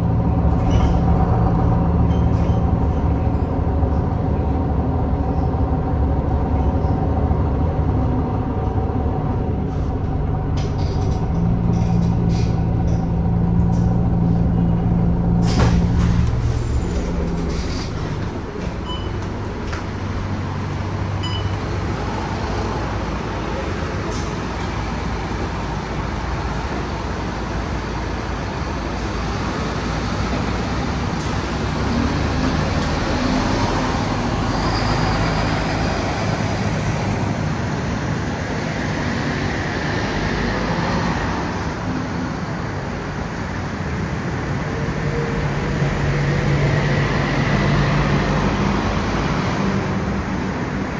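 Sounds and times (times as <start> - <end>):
bus diesel engine running: 0.0 - 50.9
road noise: 0.0 - 50.9.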